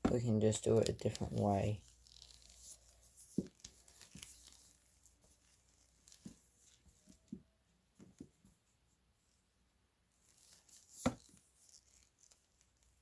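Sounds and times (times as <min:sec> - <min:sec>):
cable handling knocks and rustles: 0:00.0 - 0:01.6, 0:03.2 - 0:04.3, 0:10.9 - 0:11.4.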